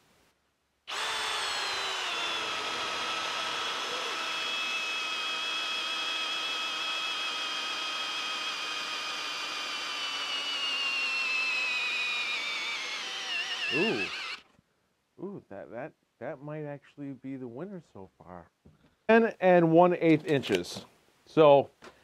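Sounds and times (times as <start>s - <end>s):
drill boring into log: 0.9s - 14.5s.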